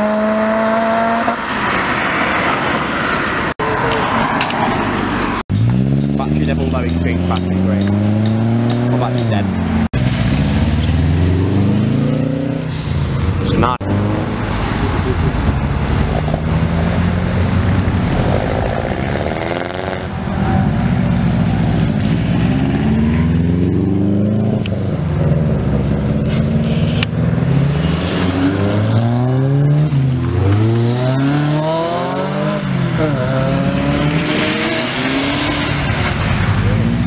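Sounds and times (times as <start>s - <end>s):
cars accelerating hard: 0.0s - 37.0s.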